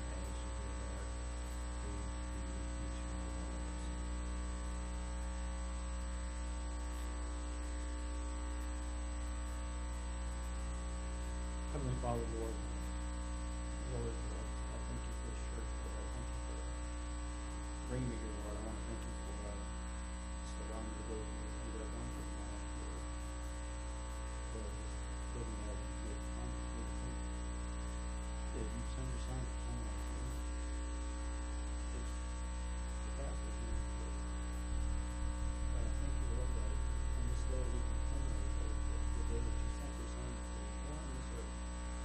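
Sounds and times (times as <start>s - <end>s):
electrical mains hum: 0.0s - 42.0s
person quietly praying: 11.7s - 12.8s, 17.9s - 19.6s, 28.6s - 30.6s, 35.4s - 41.5s.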